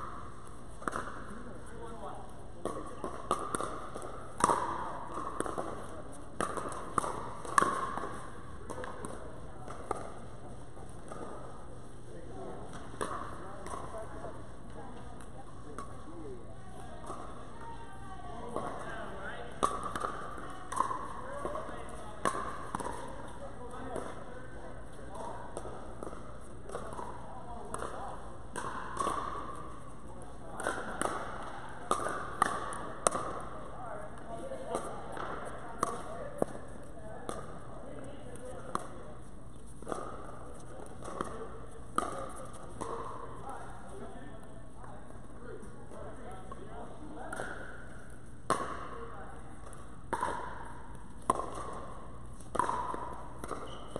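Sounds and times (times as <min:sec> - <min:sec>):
paddles striking plastic ball: 0:02.6 - 0:11.6, 0:19.5 - 0:24.3, 0:25.1 - 0:39.0, 0:47.3 - 0:53.9
plastic ball knocking off paddles: 0:49.6 - 0:53.9.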